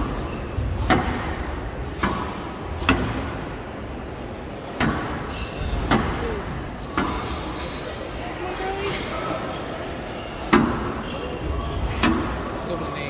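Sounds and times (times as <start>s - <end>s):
background noise: 0.0s - 13.0s
squash ball smacked by rackets: 0.7s - 3.4s.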